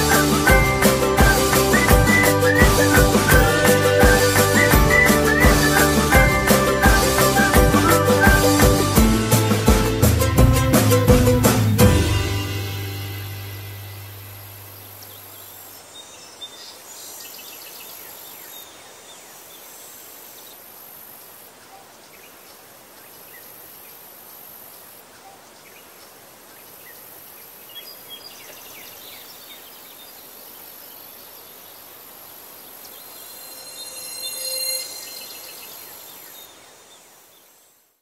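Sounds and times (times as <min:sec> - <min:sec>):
insects trilling: 0:22.9 - 0:37.7.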